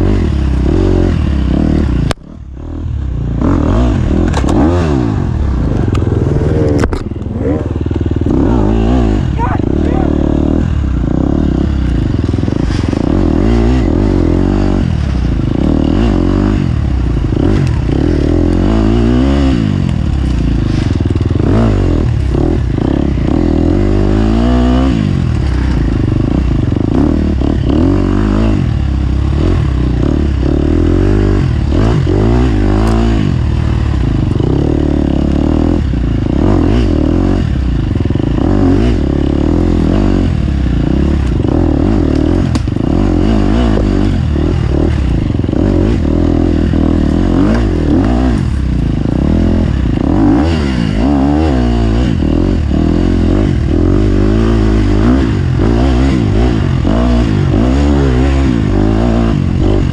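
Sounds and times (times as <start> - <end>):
racing engine revving: 3.3 - 28.7.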